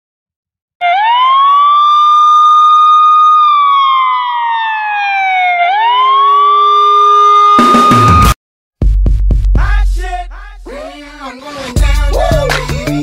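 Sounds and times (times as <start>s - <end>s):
siren wailing: 0.8s - 8.4s.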